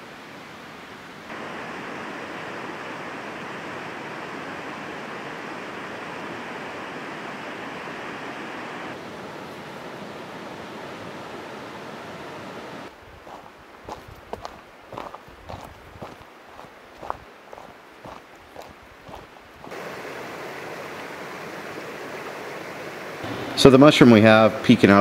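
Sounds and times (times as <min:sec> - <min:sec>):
steady rushing outdoor noise: 0:00.0 - 0:25.0.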